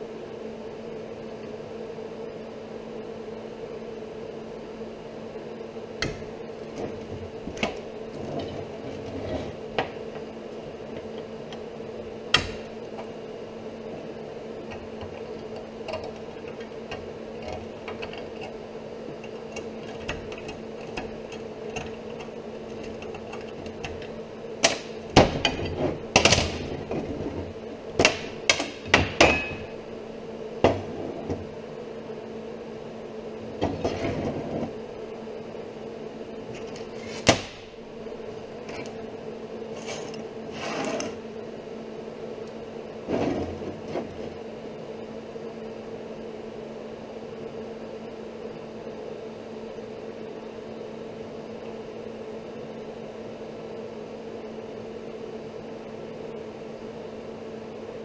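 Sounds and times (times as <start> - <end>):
steady low hum: 0.0 - 58.0
metal scraping on metal: 39.8 - 41.2.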